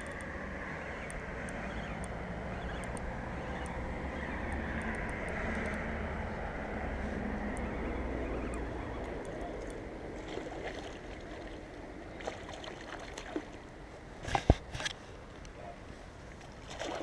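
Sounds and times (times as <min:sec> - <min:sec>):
light clicks of fishing reel: 0:00.0 - 0:03.8, 0:04.5 - 0:05.9.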